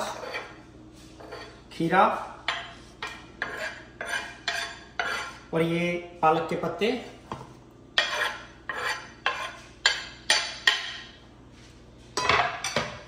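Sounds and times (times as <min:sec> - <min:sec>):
spoon scraping wooden board: 0:00.0 - 0:01.6, 0:02.5 - 0:05.5, 0:08.0 - 0:10.0.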